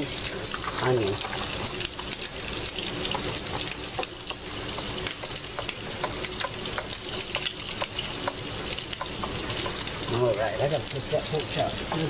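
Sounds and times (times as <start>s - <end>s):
meat sizzling in a frying pan: 0.0s - 12.0s.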